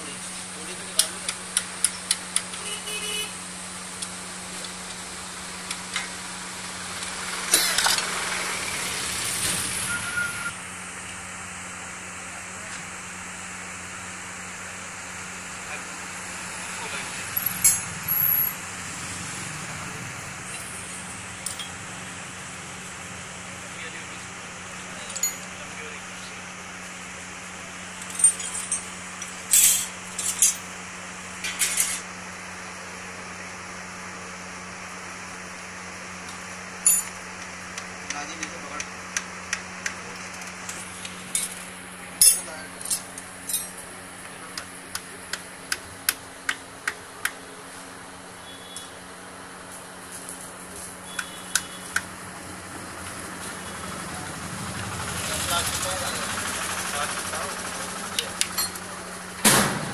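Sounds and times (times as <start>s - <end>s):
metal engine parts clinking: 17.3s - 18.2s, 21.4s - 21.8s, 25.0s - 25.7s, 28.0s - 30.7s, 31.4s - 32.0s, 36.8s - 37.2s, 40.4s - 43.9s, 58.4s - 58.8s.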